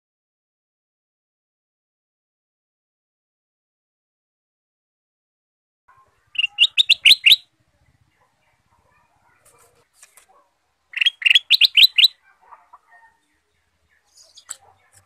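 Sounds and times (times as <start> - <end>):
bird singing rapid clear notes: 5.9 - 10.2, 10.9 - 15.0.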